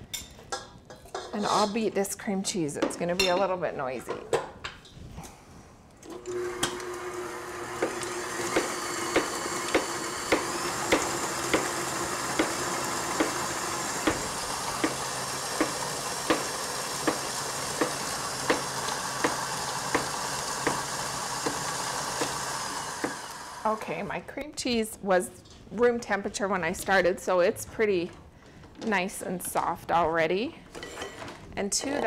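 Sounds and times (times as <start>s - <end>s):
electric stand mixer running: 6.2s - 23.8s.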